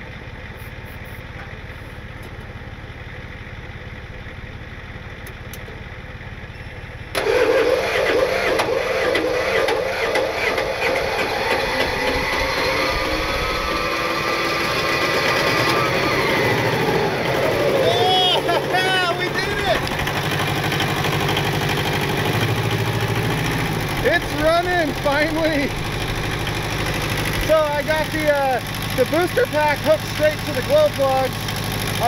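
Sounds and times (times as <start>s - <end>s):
diesel tractor engine starting: 0.0s - 32.0s
steady low hum: 21.8s - 30.2s.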